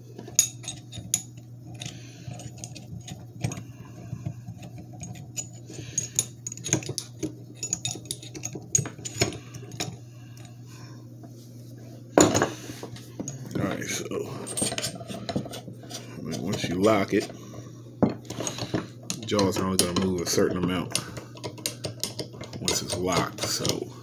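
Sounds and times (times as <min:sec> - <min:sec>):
metal parts clicking and clinking: 0:04.7 - 0:10.5, 0:14.4 - 0:15.6, 0:18.1 - 0:23.8.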